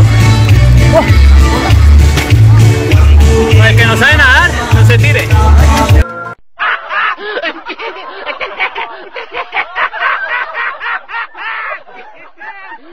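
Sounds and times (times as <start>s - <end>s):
music: 0.0s - 6.4s
high-pitched laughing: 0.8s - 1.8s, 6.6s - 12.9s.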